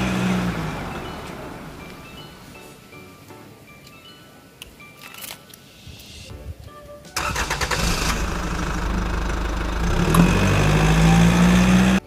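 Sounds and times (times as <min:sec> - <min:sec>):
car engine starting and running: 0:00.0 - 0:02.1, 0:07.2 - 0:12.0.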